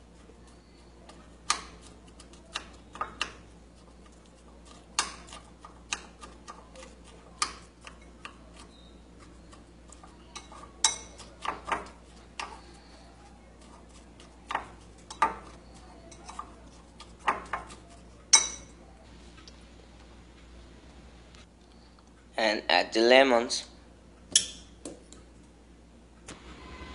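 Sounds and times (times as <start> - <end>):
metal spoon clinking on glass bowl: 18.3 - 18.8.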